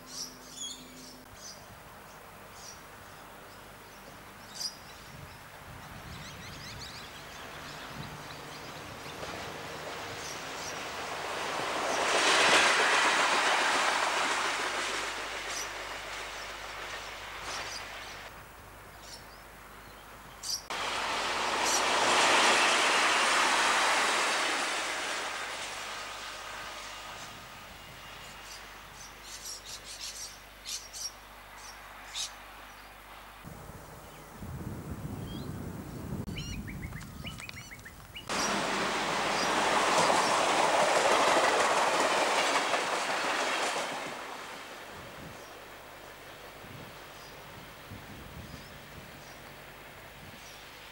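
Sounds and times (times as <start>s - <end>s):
faint train sound: 0.0s - 50.9s
diesel railcar passing: 0.1s - 50.9s
wheels clicking over rail joints: 7.1s - 18.3s, 20.7s - 27.3s, 36.9s - 47.4s
bird chirps: 36.3s - 38.4s.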